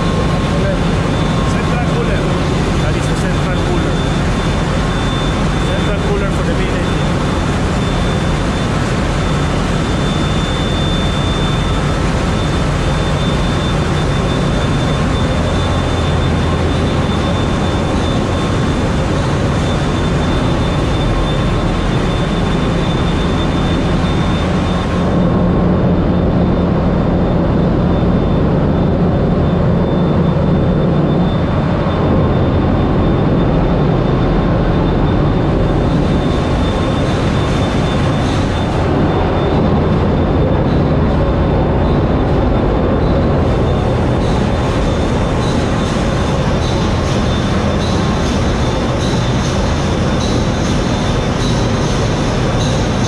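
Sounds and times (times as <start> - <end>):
engine room machinery drone: 0.0 - 53.0
thin high whine: 0.0 - 53.0.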